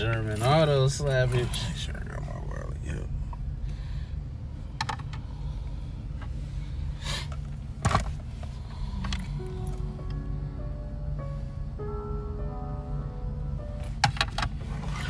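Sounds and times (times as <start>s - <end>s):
car cabin engine rumble: 0.0s - 15.0s
clicks and knocks inside car: 4.7s - 5.3s, 7.3s - 9.3s, 14.0s - 14.8s.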